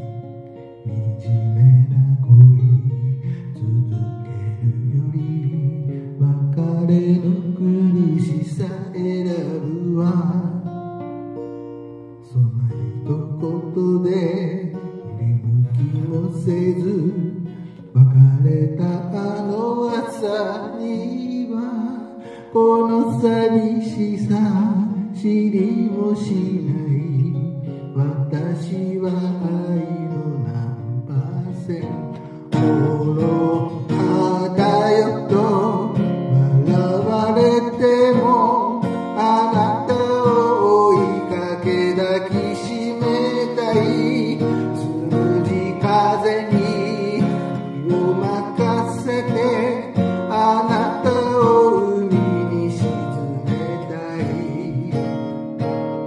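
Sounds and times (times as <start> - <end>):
strummed acoustic guitar: 0.0 - 56.0
person singing with vibrato: 12.2 - 55.3.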